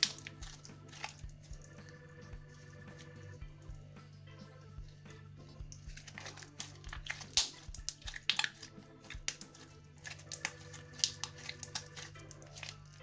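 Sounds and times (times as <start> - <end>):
slime popping and clicking: 0.0 - 1.2, 5.7 - 13.0
background music: 0.0 - 13.0.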